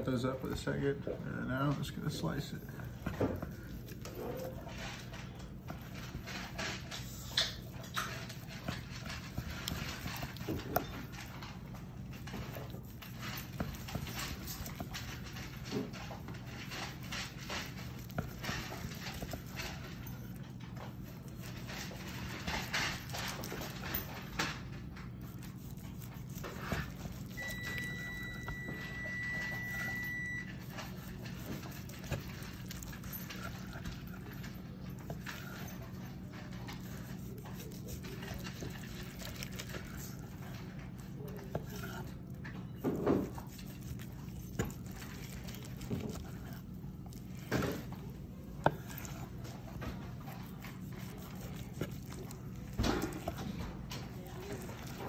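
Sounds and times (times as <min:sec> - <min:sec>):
knife sawing through meat: 0:25.2 - 0:28.7, 0:29.6 - 0:55.0.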